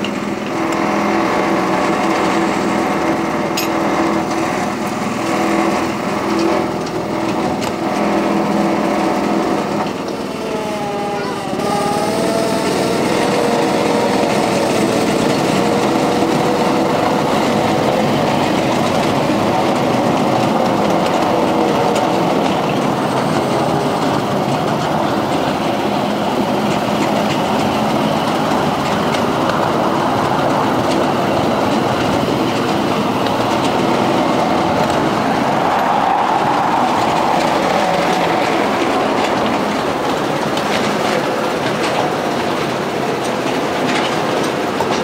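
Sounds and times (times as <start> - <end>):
miniature train wheels clattering on rails: 0.0 - 45.0.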